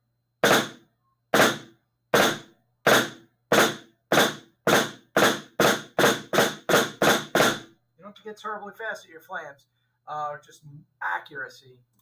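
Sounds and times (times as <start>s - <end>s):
snare drum flams: 0.4s - 0.8s, 1.4s - 7.7s.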